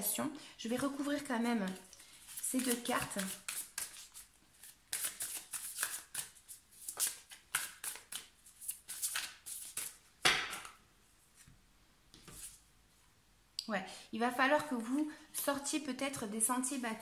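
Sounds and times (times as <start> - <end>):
cards being shuffled: 0.9 - 10.8.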